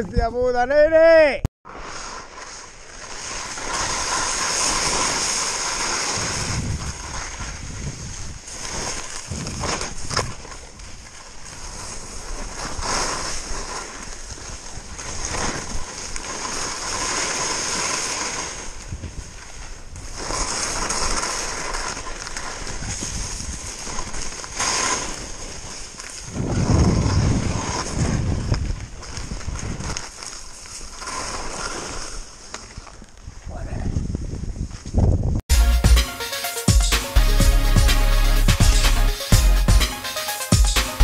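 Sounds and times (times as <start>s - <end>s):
skis scraping over snow: 1.7s - 33.4s
wind buffeting microphone: 6.1s - 8.5s, 26.3s - 30.0s, 33.2s - 35.4s.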